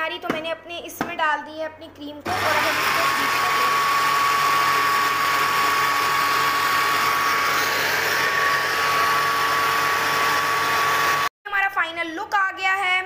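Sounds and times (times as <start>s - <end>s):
stand mixer whisking cream: 2.3s - 11.3s.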